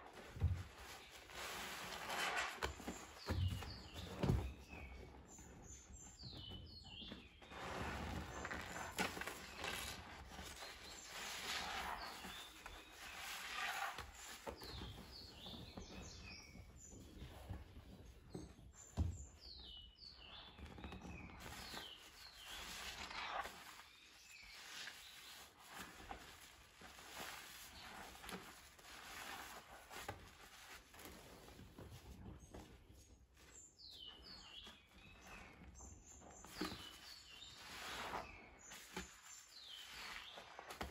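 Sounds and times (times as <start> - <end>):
wet squelching of sponges: 0.0 - 4.6, 7.4 - 15.4, 21.5 - 32.1, 36.4 - 40.9.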